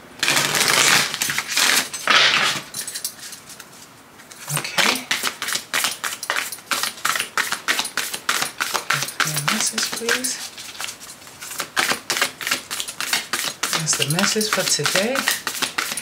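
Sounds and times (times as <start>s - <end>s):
cards being shuffled: 0.2s - 16.0s
card slaps and flicks: 4.8s - 10.9s, 11.5s - 16.0s.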